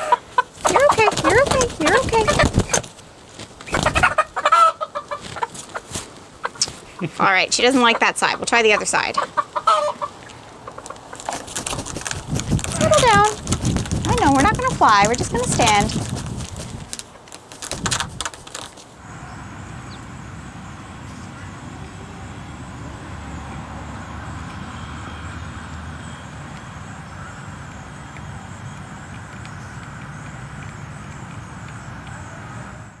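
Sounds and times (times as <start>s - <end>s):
outdoor background noise: 0.0s - 33.0s
chicken flapping wings: 0.6s - 4.2s, 5.1s - 6.1s, 11.2s - 18.8s.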